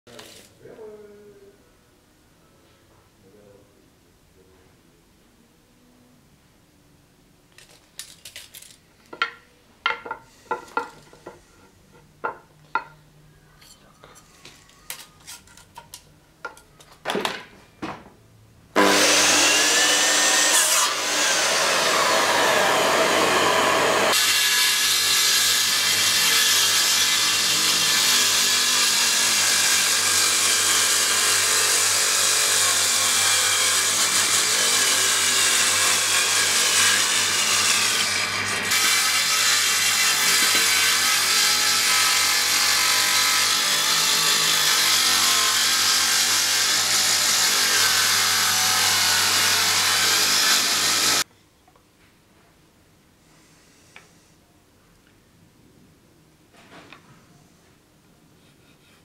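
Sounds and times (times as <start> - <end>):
saw blade winding down: 18.8 - 51.2
table saw ripping wood: 18.8 - 51.2
power saw cutting wood: 18.8 - 51.3.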